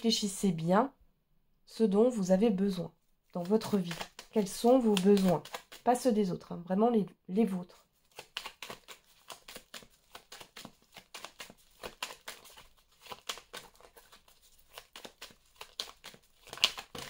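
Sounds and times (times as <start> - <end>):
cards being shuffled by hand: 3.3 - 6.4, 7.9 - 17.0.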